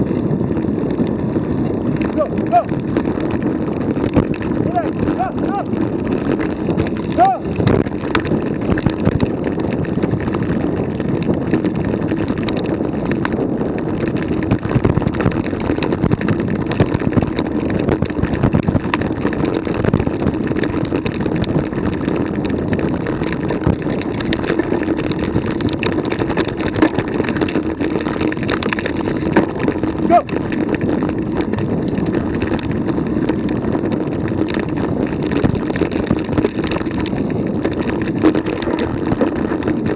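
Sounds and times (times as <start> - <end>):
wind buffeting microphone: 0.0 - 39.9
small knocks and rattles: 23.2 - 39.9.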